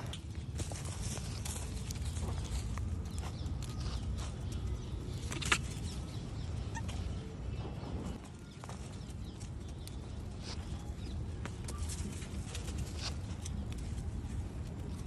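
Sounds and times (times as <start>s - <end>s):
footsteps crunching on dry leaves: 0.0s - 4.9s.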